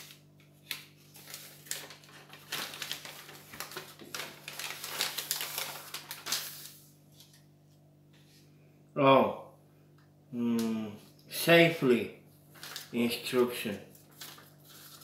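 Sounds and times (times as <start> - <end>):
paper rustling and crinkling: 0.0 - 7.4, 12.5 - 15.0.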